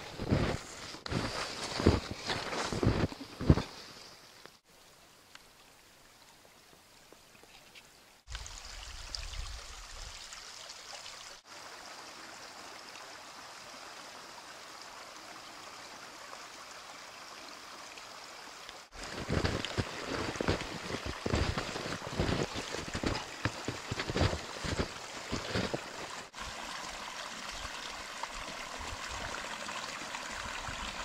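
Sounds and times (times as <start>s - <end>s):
footstep crunching in snow: 0.0s - 3.8s, 18.9s - 26.4s
brook water rushing: 0.0s - 4.4s, 8.3s - 31.0s.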